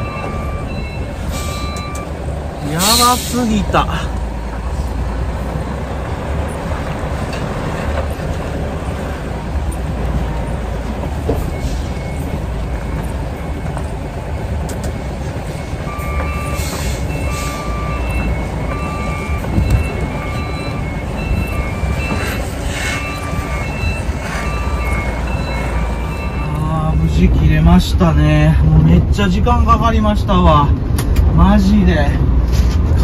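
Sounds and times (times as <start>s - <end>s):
reversing alarm beeps: 0.0s - 3.6s, 11.2s - 14.2s, 14.8s - 27.2s
diesel truck engine reversing: 0.0s - 28.6s.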